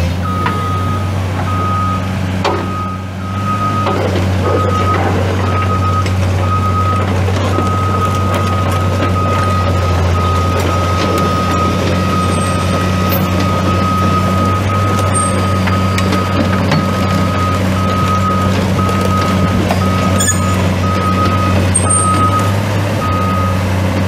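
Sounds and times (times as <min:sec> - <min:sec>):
diesel engine running: 0:00.0 - 0:24.0
alarm beeping high tone: 0:08.6 - 0:23.6.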